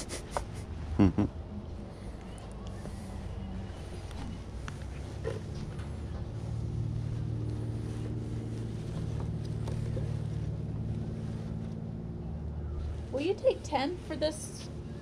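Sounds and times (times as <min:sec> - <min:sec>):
low engine hum: 0:00.0 - 0:15.0.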